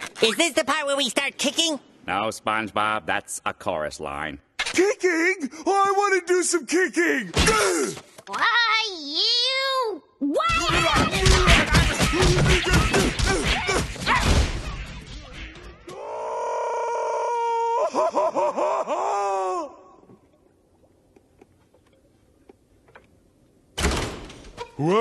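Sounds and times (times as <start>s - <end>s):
people shouting: 10.2s - 15.0s
thumping blows: 10.5s - 16.0s
long pained groan: 15.9s - 17.9s.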